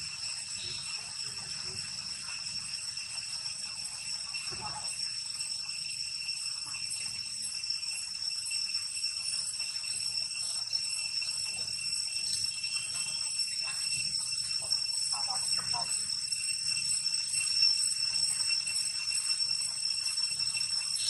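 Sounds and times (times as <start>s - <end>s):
shrill insect chorus: 0.0s - 21.0s.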